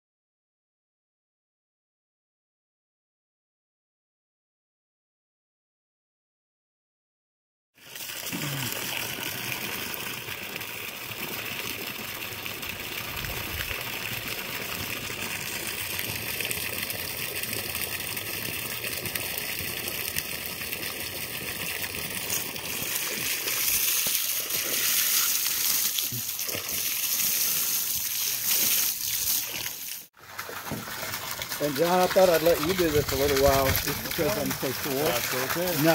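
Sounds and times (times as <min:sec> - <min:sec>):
water jet hissing: 0:21.6 - 0:35.9
water splashing on decking: 0:22.3 - 0:35.9.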